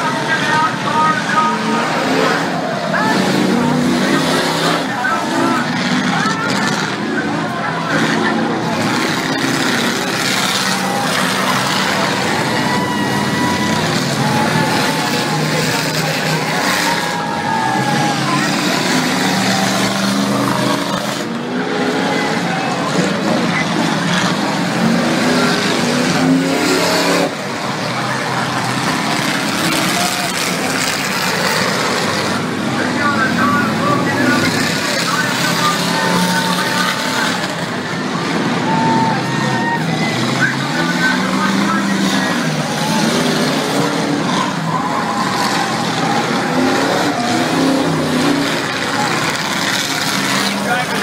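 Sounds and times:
demolition derby car engines revving: 0:00.0 - 0:51.0.

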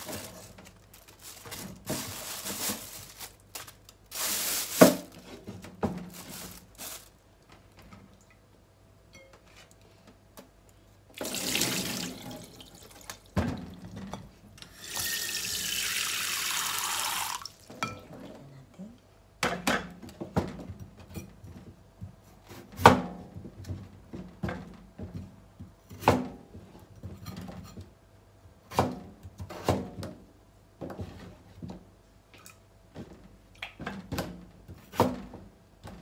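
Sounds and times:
tap running into sink: 0:11.2 - 0:13.7.

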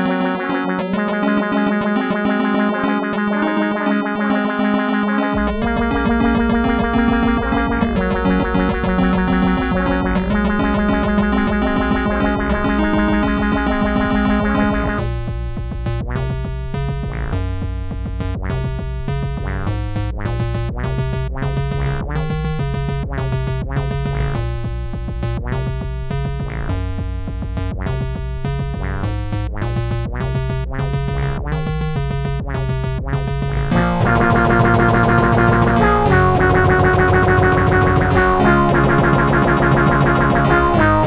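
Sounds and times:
synthesizer with cat meows: 0:00.0 - 0:15.1, 0:33.7 - 0:41.0
drum machine and bass: 0:00.0 - 0:41.0.

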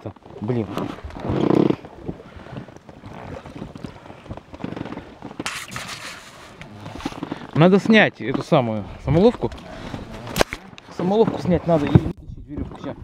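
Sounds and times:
wind buffeting microphone: 0:07.9 - 0:13.0.

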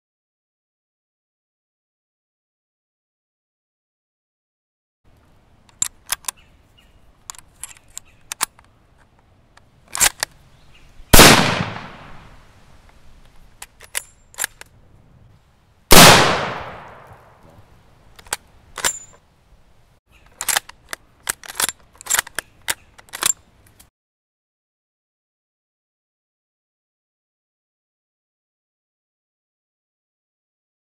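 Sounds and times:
rifle bolt clicking: 0:05.6 - 0:06.4, 0:07.2 - 0:08.7, 0:09.6 - 0:10.4, 0:13.6 - 0:14.7, 0:20.4 - 0:23.9
rifle shots with echo: 0:11.1 - 0:12.4, 0:15.9 - 0:17.4.

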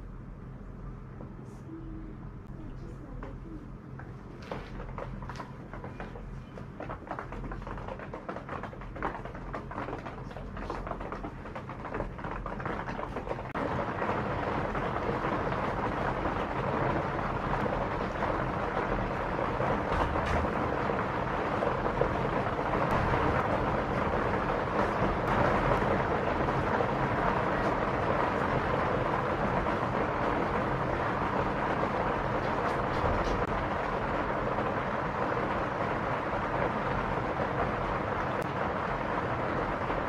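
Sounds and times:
steady rushing noise: 0:03.4 - 0:40.0.

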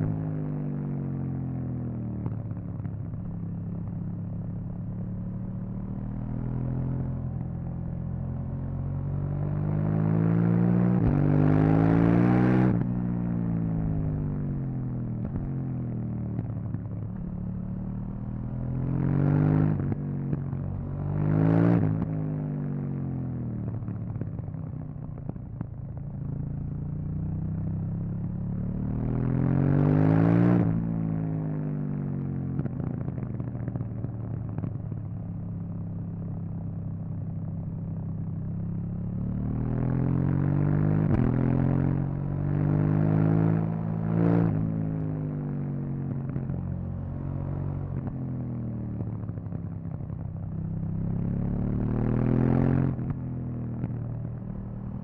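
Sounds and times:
motorcycle engine revving: 0:38.8 - 0:55.0.

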